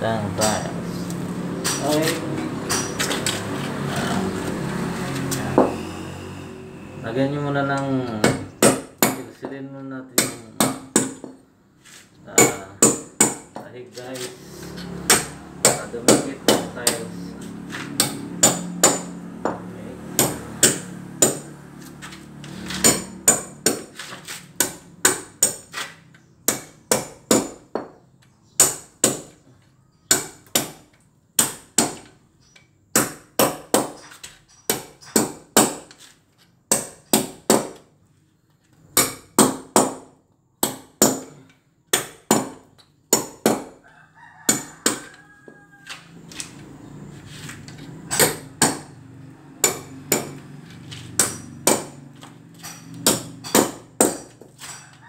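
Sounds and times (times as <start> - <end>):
hammer chipping concrete: 8.1 - 9.4, 12.4 - 13.6, 15.0 - 17.1, 17.8 - 21.6, 22.5 - 25.8, 26.4 - 28.0, 32.9 - 35.9, 39.0 - 43.8, 48.1 - 48.9, 49.6 - 50.5, 51.1 - 54.8.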